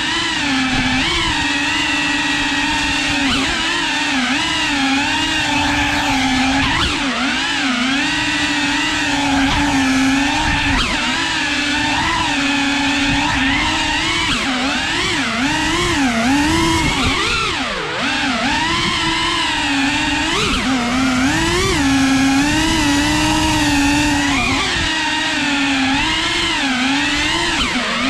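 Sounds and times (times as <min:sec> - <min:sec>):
drone propellers whining: 0:03.8 - 0:12.4.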